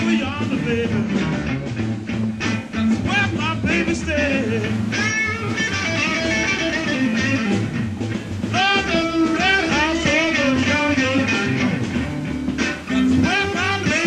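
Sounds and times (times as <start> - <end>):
person singing: 0.0 - 1.2, 3.0 - 4.9, 8.5 - 11.9, 12.8 - 14.0
electric guitar: 0.0 - 14.0
steady bass: 0.0 - 14.0.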